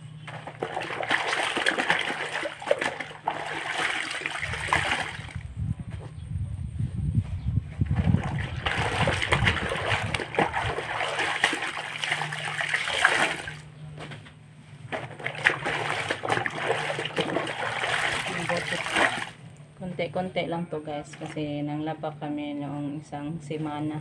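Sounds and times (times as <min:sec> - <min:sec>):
water splashing in a basin: 0:00.2 - 0:05.5, 0:07.8 - 0:13.7, 0:14.9 - 0:19.4.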